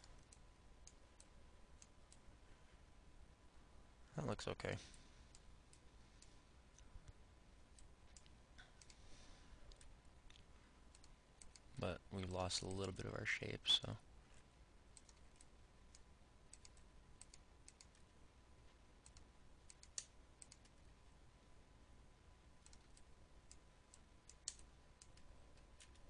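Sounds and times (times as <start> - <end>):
faint steady hum: 0.0 - 26.0
keyboard and mouse clicks: 7.7 - 9.0, 9.7 - 11.7, 15.0 - 18.1, 19.0 - 20.8, 22.6 - 26.0.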